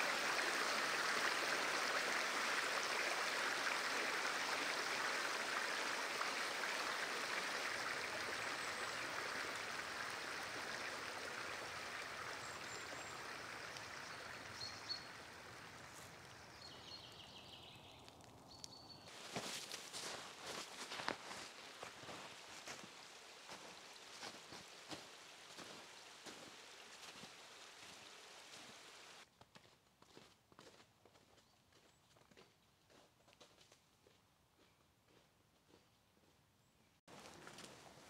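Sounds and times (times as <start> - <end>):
stream running: 0.0 - 29.2.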